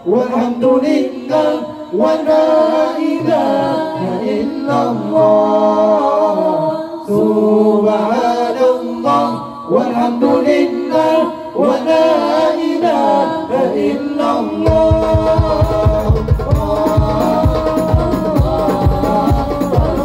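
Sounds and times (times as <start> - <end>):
man singing unaccompanied: 0.0 - 20.0
hand drums beating: 14.7 - 20.0.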